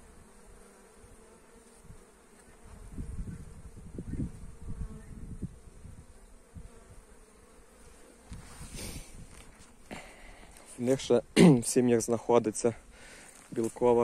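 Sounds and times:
bees buzzing: 0.0 - 10.9.

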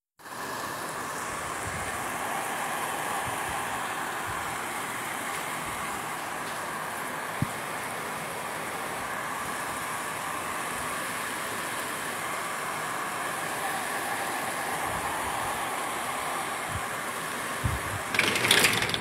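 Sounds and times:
rain falling steadily: 0.2 - 18.1.

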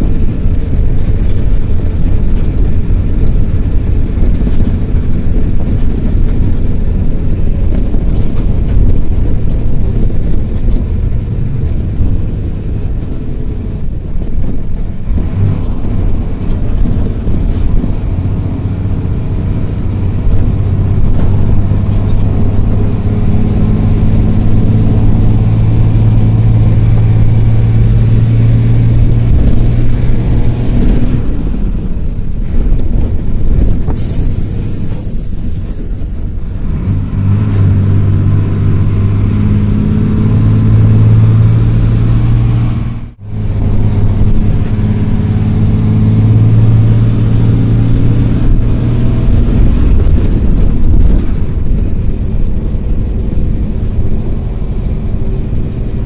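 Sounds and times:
bus engine and road rumble: 0.0 - 56.0
steady engine drone: 0.0 - 56.0.

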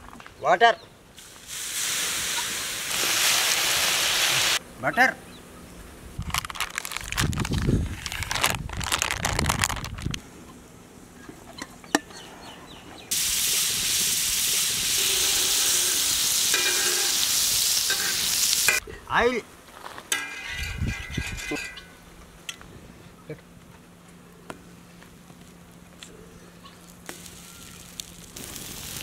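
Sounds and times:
butter sizzling on griddle: 1.2 - 4.6, 13.1 - 18.8, 27.0 - 29.0.

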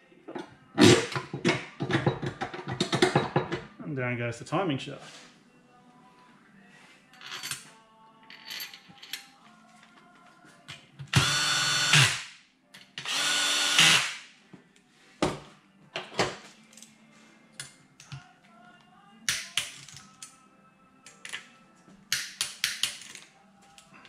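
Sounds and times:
cordless drill running: 11.2 - 12.1, 13.0 - 14.1
metallic clicks of hand tools: 22.1 - 23.1.

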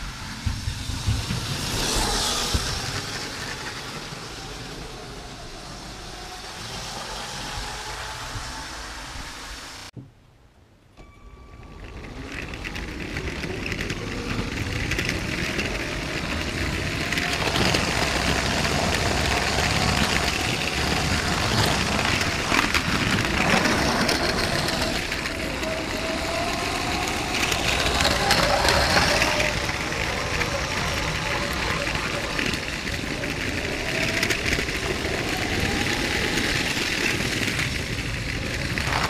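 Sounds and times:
toy train wheels clattering on track: 11.7 - 39.0.

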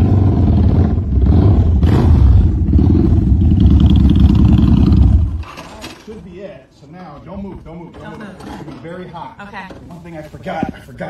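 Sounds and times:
motorcycle engine running: 0.0 - 5.6.

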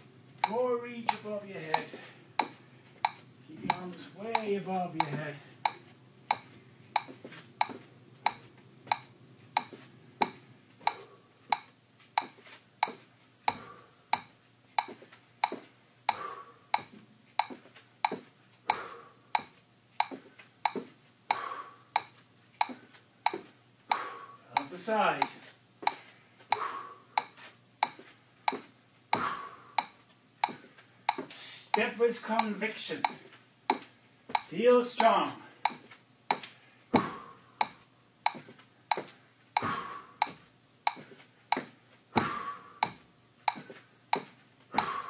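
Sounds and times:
metronome clicking: 0.4 - 13.0, 29.8 - 31.2, 32.4 - 33.8, 34.4 - 36.5.

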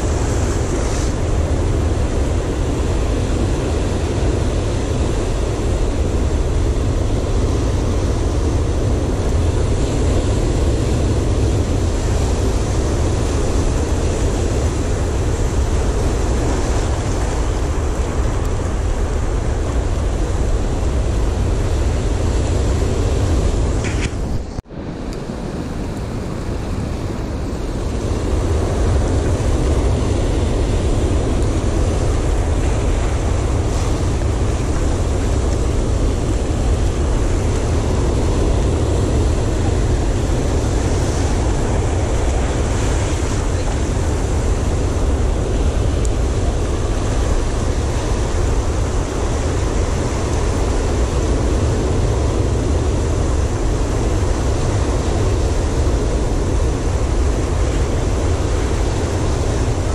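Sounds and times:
wind buffeting microphone: 0.0 - 59.9
surf breaking on rocks: 25.3 - 59.9.

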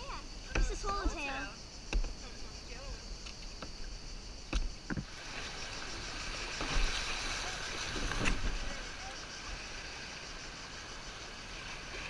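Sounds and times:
white water rushing: 5.0 - 12.0.

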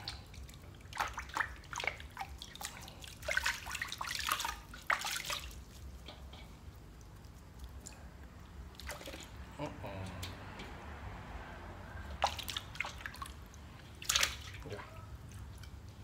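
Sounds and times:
water splashing in metal basin: 0.0 - 6.4, 8.7 - 9.5, 12.0 - 15.8.

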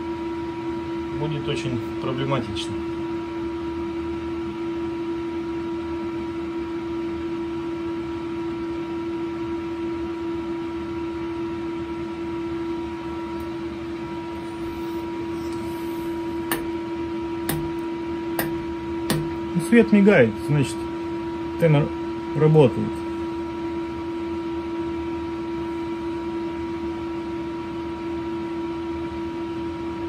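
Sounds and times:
steady machine hum: 0.0 - 30.0.

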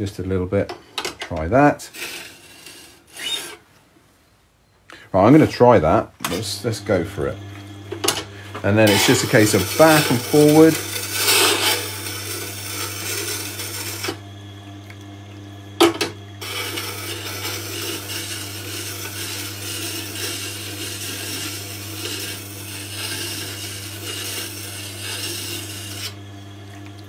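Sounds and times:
grinder motor hum: 1.3 - 3.6, 5.2 - 27.0
steel scraping on grindstone: 1.8 - 3.6, 8.8 - 14.2, 16.4 - 26.2.

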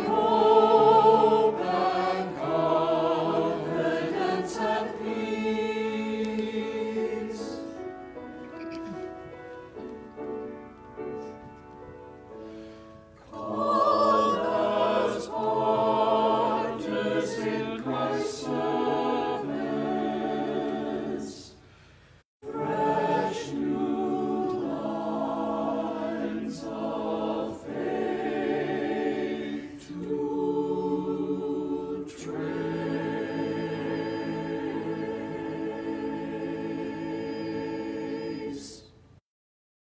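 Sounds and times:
choir singing a hymn: 0.0 - 10.4, 13.2 - 21.8, 22.4 - 39.0
piano accompaniment: 6.8 - 14.4.

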